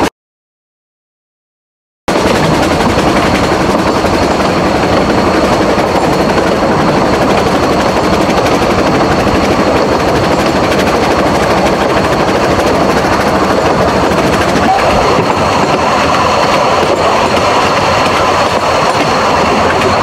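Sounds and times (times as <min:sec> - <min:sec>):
steam train rattling and rumbling: 0:02.1 - 0:20.0.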